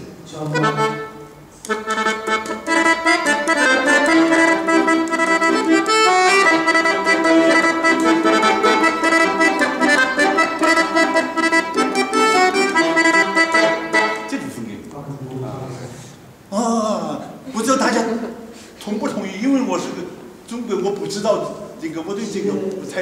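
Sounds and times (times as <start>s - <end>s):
piano accordion playing a tune: 0.4s - 14.6s.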